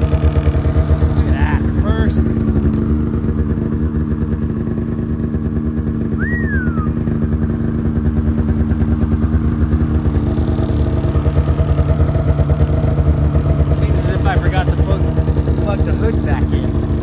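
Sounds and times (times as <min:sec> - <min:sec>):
snowmobile engine idling: 0:00.0 - 0:17.0
short high chirp: 0:06.2 - 0:07.0.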